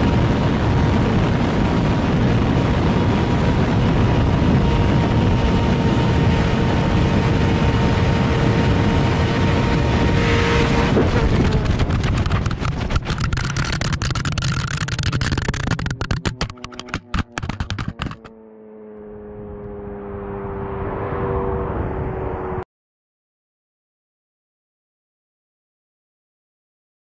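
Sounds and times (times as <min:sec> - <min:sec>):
rush of wind: 0:00.0 - 0:18.4, 0:19.0 - 0:22.6
motorcycle engine at full throttle: 0:00.0 - 0:22.6
camera tumbling knocks and clatters: 0:10.9 - 0:18.3.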